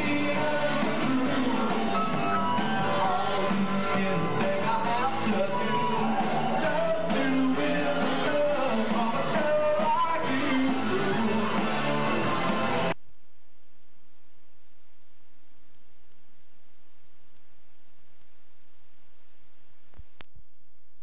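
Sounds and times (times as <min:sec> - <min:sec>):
lead vocal singing: 0:00.0 - 0:12.9
bass guitar: 0:00.0 - 0:13.0
drums: 0:00.0 - 0:13.0
electric guitars: 0:00.0 - 0:13.0.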